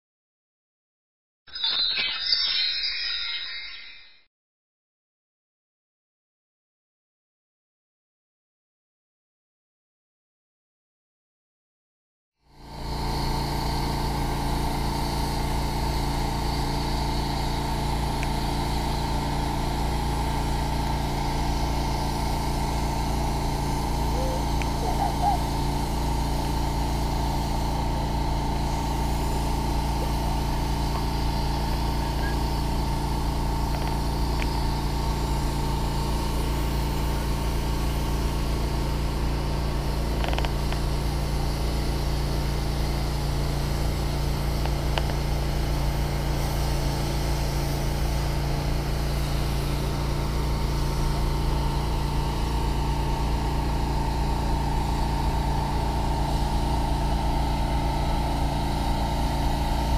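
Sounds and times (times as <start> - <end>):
motor-driven equipment humming: 12.5 - 59.9.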